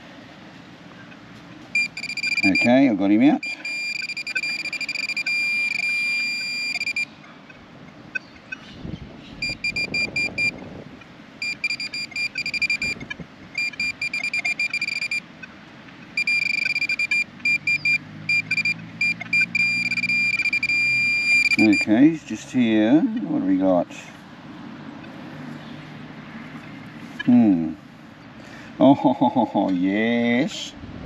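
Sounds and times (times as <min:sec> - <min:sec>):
metal detector tone: 0:01.8 - 0:07.1, 0:09.4 - 0:10.5, 0:11.4 - 0:13.0, 0:13.6 - 0:15.2, 0:16.2 - 0:22.0.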